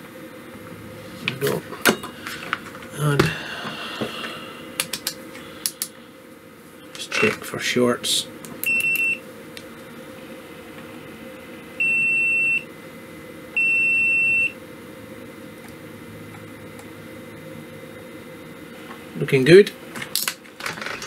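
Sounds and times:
multimeter continuity beeps: 8.6 - 9.2, 11.8 - 12.7, 13.6 - 14.6.

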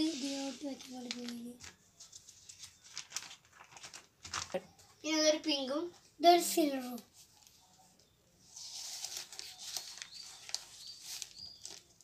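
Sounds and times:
plastic file crinkling: 0.3 - 4.7, 8.6 - 12.0.

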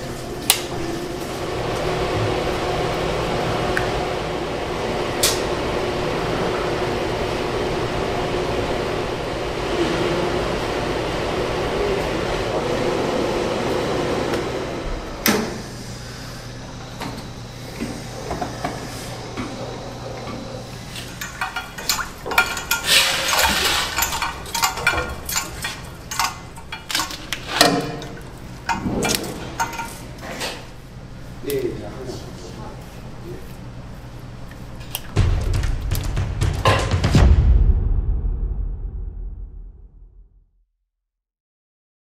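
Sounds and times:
mixer blades churning batter: 0.0 - 35.2
quiet machine hum: 0.0 - 37.0
pots and pans clattering: 20.2 - 30.6
machine knock: 35.2 - 37.5.

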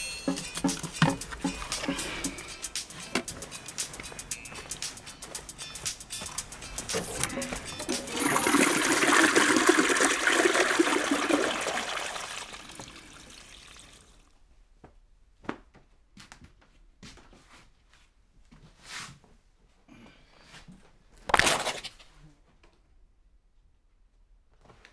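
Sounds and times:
toilet flushing: 6.9 - 14.2.

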